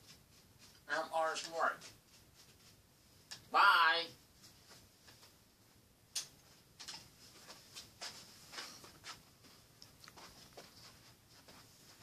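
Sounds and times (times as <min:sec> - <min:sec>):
faint rustling and clicks: 0:04.3 - 0:12.0.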